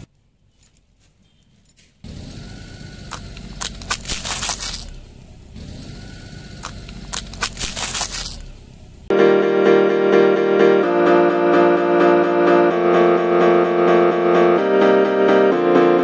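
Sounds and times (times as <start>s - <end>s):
slow-moving car rumble: 1.9s - 9.1s
tyre crushing wafer cones: 3.0s - 5.0s, 6.6s - 8.5s.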